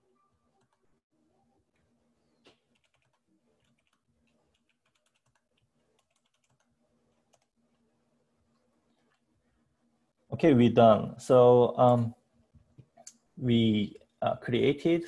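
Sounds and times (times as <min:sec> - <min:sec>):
typing on computer keyboard: 0:02.6 - 0:07.5.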